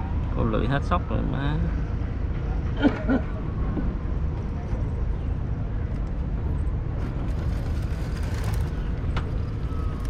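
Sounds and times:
low mechanical rumble: 0:01.7 - 0:10.0.

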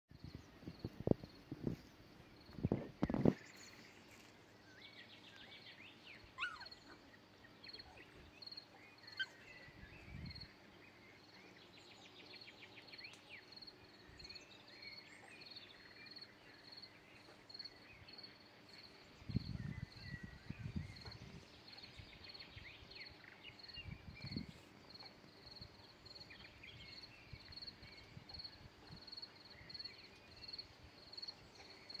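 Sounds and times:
wind rumble on microphone: 0:00.1 - 0:03.7, 0:09.6 - 0:10.6, 0:19.1 - 0:24.9
birds chirping: 0:00.2 - 0:28.2.

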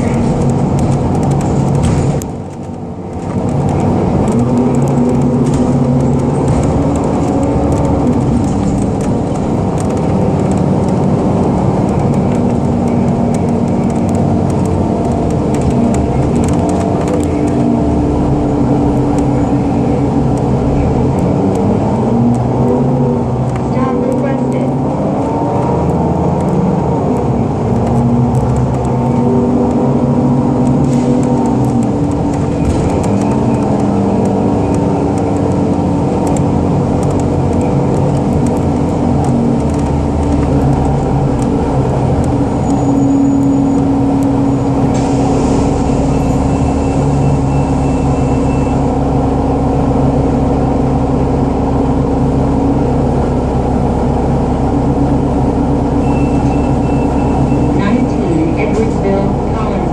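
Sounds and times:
bus engine droning: 0:00.0 - 0:59.9.

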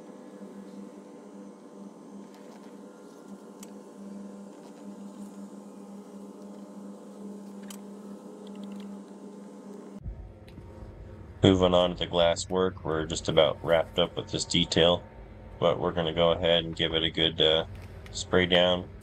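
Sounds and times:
low mechanical hum: 0:00.0 - 0:19.0.

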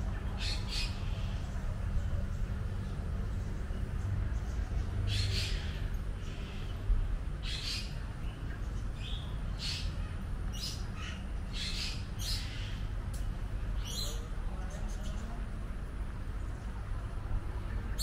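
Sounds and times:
steady low hum: 0:00.0 - 0:18.0
birds giving harsh calls: 0:00.1 - 0:03.8, 0:04.4 - 0:08.1, 0:08.9 - 0:13.0.

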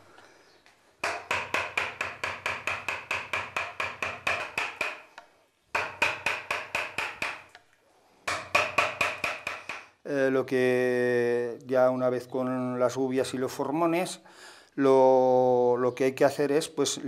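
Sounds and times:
mallet knocking on carving gouge: 0:01.0 - 0:07.6, 0:08.3 - 0:09.9.

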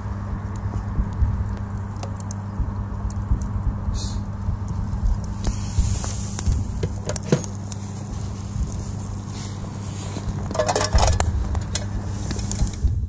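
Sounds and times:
fire pops and crackles: 0:00.0 - 0:13.0
low hum: 0:00.0 - 0:13.0
high hiss: 0:03.7 - 0:10.3.

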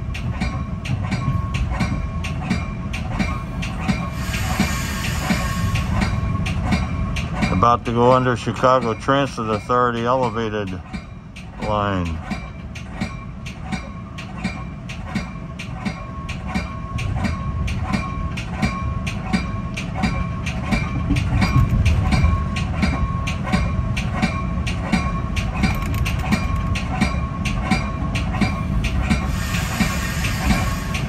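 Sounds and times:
train rumble: 0:00.0 - 0:31.0
train wheels clicking over rail joints: 0:00.0 - 0:31.0.

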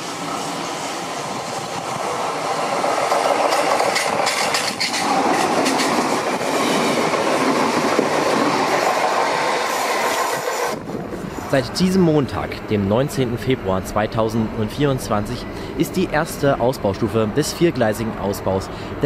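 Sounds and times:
electric train passing: 0:00.0 - 0:19.0
wheel clicks over rail joints: 0:03.3 - 0:06.2.

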